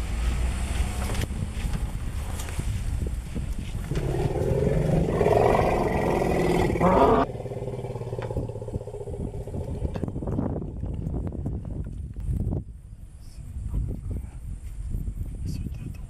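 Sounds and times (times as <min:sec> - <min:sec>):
vehicle engine idling: 0:03.7 - 0:11.2
elephant rumbling call: 0:03.9 - 0:10.2.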